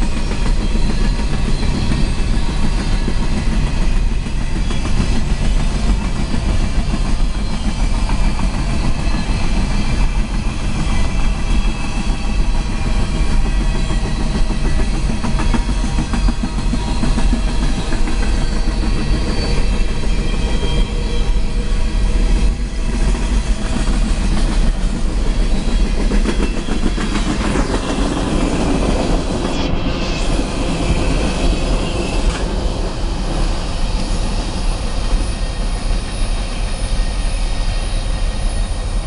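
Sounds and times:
freight train rolling: 0.0s - 39.0s.

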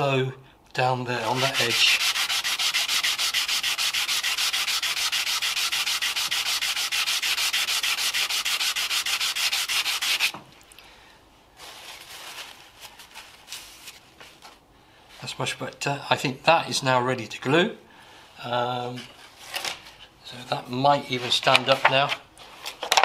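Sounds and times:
acrylic scraping on sandpaper: 1.2s - 10.3s
faint handling sounds: 10.4s - 15.5s, 18.7s - 23.0s.

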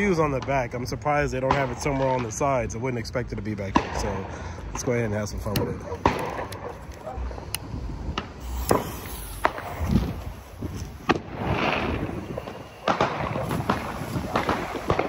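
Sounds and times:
sharp clicks and pops: 5.4s - 11.3s
firework spinner hissing: 6.3s - 15.0s.

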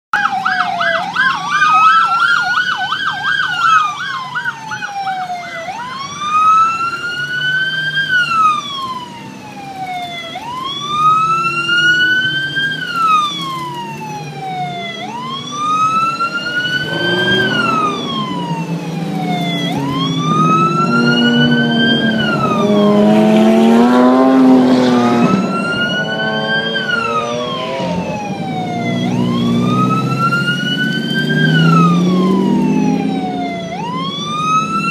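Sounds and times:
police siren wailing: 0.1s - 34.9s
sports car engines revving: 10.2s - 34.9s.

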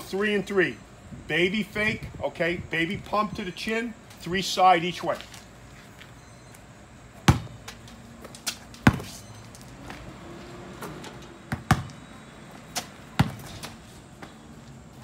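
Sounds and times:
ball banging on hoop: 7.2s - 7.6s, 8.8s - 9.1s, 11.5s - 12.0s, 13.2s - 13.6s
basketball dribbling on hard ground: 7.2s - 15.0s.

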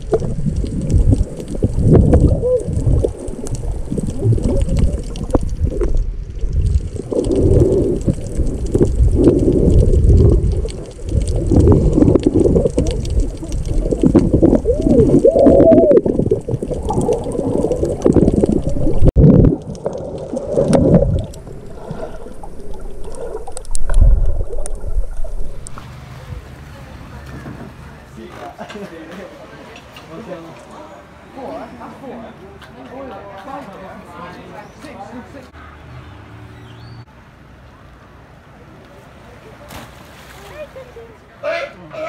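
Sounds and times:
warbling bubble sounds: 0.0s - 25.8s
underwater rushing and gurgling water: 0.0s - 26.9s.

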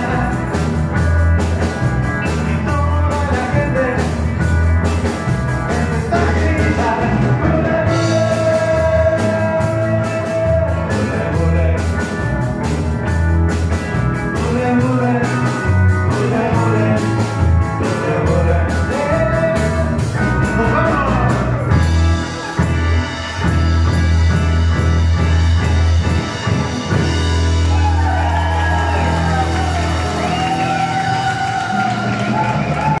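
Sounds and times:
person singing: 0.0s - 1.0s, 1.6s - 4.4s, 5.6s - 12.2s, 14.3s - 21.8s
bass line: 0.0s - 33.0s
electric guitars: 0.0s - 33.0s.

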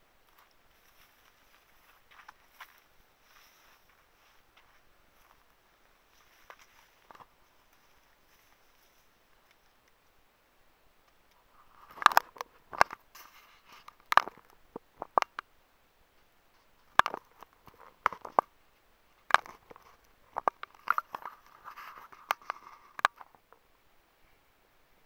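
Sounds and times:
footsteps crunching on gritty rock: 0.4s - 5.5s, 6.1s - 8.7s.

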